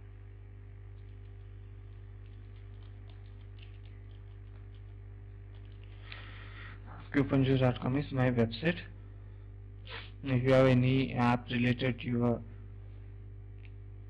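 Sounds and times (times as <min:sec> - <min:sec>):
electrical mains hum: 0:00.0 - 0:14.0
brief hiss: 0:09.9 - 0:10.2.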